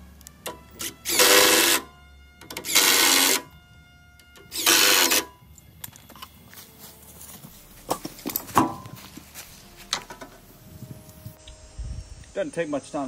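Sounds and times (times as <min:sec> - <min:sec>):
impact driver driving screws: 0:00.4 - 0:03.5, 0:04.4 - 0:05.3.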